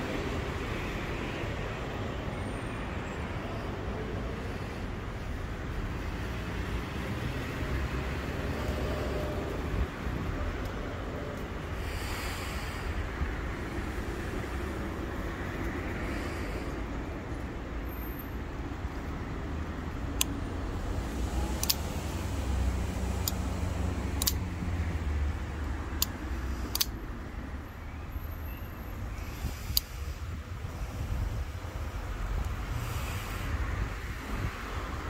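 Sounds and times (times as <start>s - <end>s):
pocketknife blade clicking: 21.6s - 21.8s, 24.2s - 24.4s, 26.0s - 27.0s.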